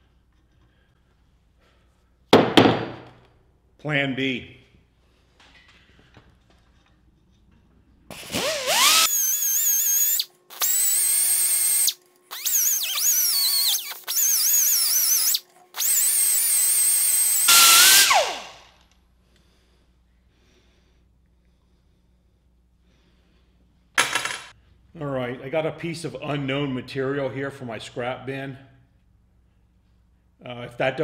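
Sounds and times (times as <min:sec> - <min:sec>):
grinder winding down: 0:08.1 - 0:18.7
air grinder grinding steel: 0:08.2 - 0:18.7.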